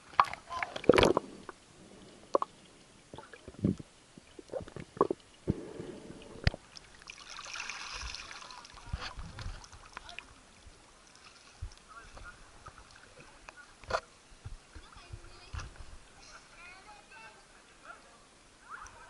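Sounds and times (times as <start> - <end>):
water gurgling: 0.0 - 16.2
soft hiss: 0.0 - 19.0
muffled underwater knocks and clicks: 0.1 - 1.6, 3.1 - 6.6.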